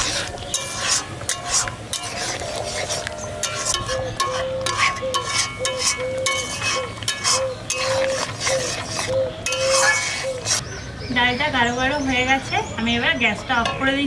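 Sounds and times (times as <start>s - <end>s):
metal ladle scraping pot: 0.0s - 10.7s.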